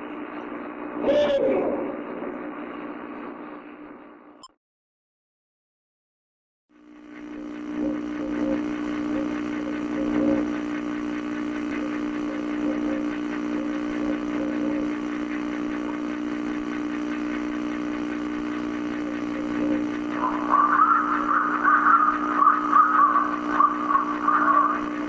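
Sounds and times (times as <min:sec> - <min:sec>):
droning hum: 0:00.0 - 0:04.4, 0:06.8 - 0:25.0
faint wavering calls: 0:20.2 - 0:24.8.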